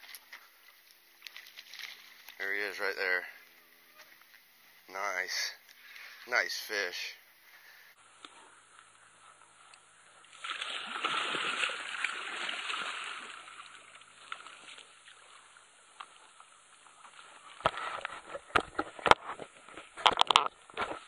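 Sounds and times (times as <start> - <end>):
fish thrashing water splashing: 10.3 - 15.4.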